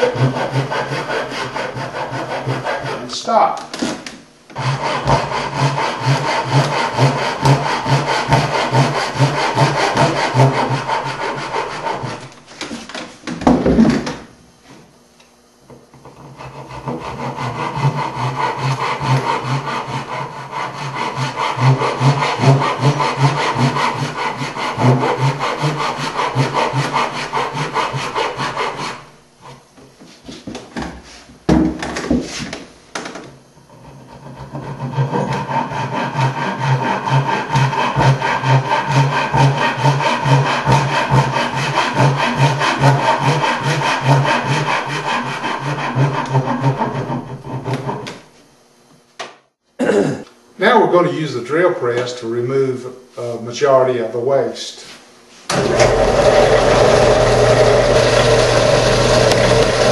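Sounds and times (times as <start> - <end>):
hand saw rasping strokes: 0.0 - 3.3, 4.6 - 12.4, 16.0 - 29.6, 33.7 - 48.1, 55.5 - 59.9.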